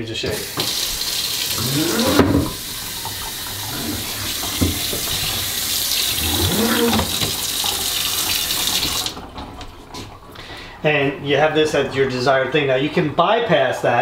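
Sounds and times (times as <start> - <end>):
water splashing in metal sink: 0.2 - 10.3.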